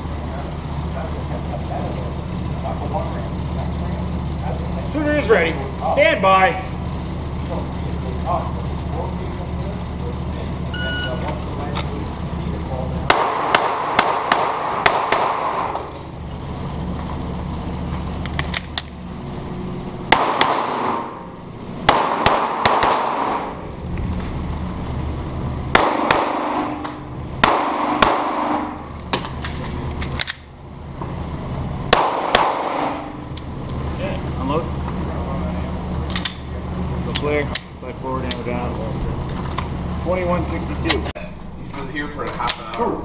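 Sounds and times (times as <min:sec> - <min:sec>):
steady low hum: 0:00.0 - 0:43.0
pistol shots echoing indoors: 0:13.1 - 0:15.8, 0:20.1 - 0:21.2, 0:21.8 - 0:23.6, 0:25.7 - 0:29.3, 0:31.9 - 0:33.2.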